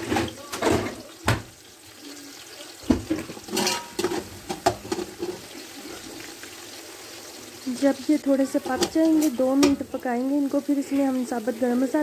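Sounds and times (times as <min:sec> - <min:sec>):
onions frying hiss: 0:00.0 - 0:12.0
metal spoon scraping a pot: 0:03.2 - 0:05.4.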